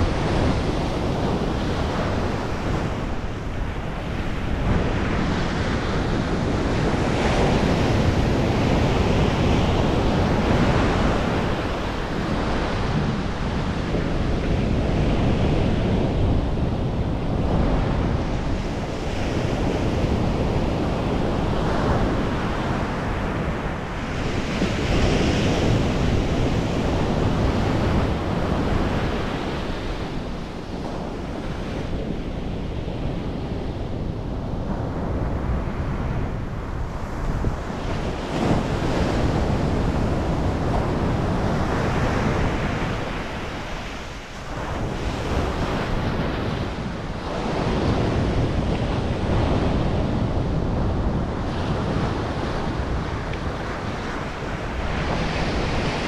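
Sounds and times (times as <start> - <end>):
ocean surf breaking: 0.0 - 56.0
wind buffeting microphone: 0.0 - 56.0.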